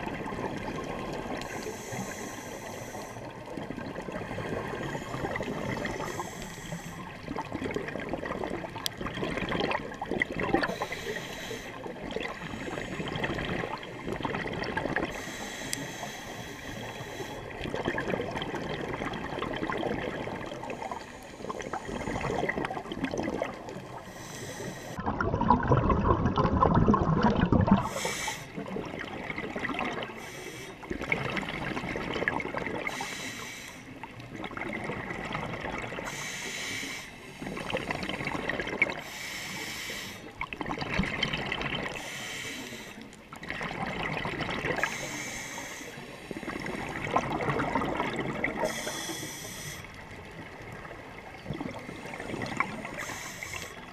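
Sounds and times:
diver breathing through regulator: 1.3s - 3.5s, 4.2s - 7.2s, 10.6s - 13.8s, 15.0s - 17.7s, 20.6s - 22.6s, 24.0s - 25.0s, 27.8s - 28.6s, 30.0s - 31.0s, 32.8s - 34.0s, 36.0s - 38.3s, 38.9s - 40.4s, 41.9s - 43.2s, 44.7s - 46.9s, 48.3s - 50.1s, 51.7s - 53.9s.

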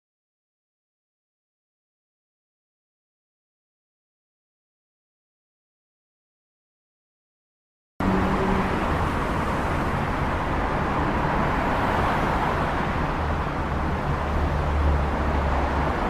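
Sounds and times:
motor vehicle rumble: 8.0s - 16.0s.

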